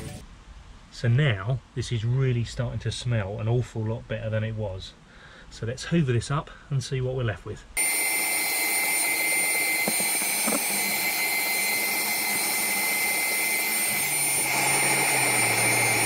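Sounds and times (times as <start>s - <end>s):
vacuum cleaner whining: 7.8s - 16.0s.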